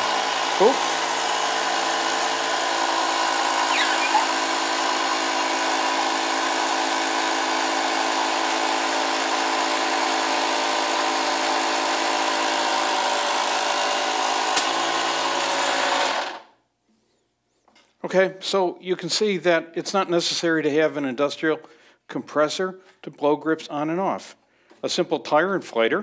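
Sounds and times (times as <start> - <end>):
tire inflator blowing air: 3.2 - 5.1.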